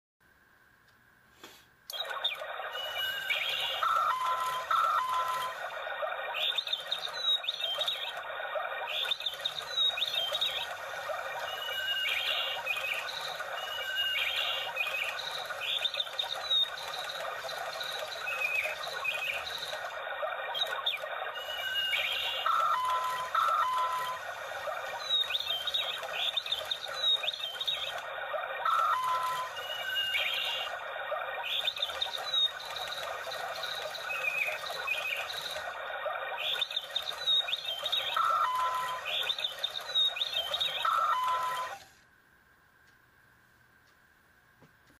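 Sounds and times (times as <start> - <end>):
steady noisy background: 0.3 - 44.9
recorded birdsong from speaker: 4.9 - 28.0, 31.4 - 41.7.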